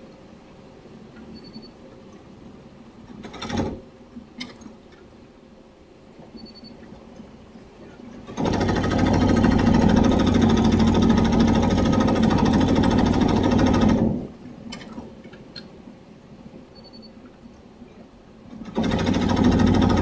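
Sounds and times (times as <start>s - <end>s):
embroidery machine stitching: 3.2s - 3.8s, 8.2s - 14.3s, 18.6s - 20.0s.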